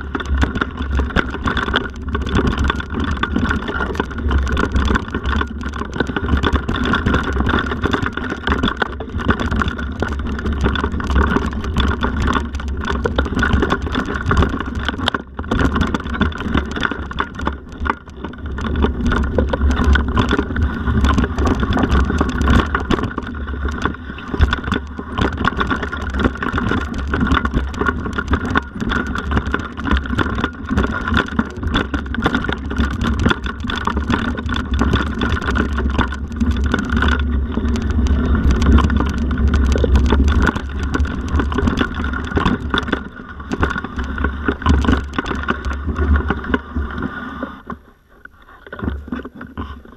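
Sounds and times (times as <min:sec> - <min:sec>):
bike rattling and knocking: 0:00.0 - 0:49.9
wind and tyres rumbling: 0:00.0 - 0:49.9.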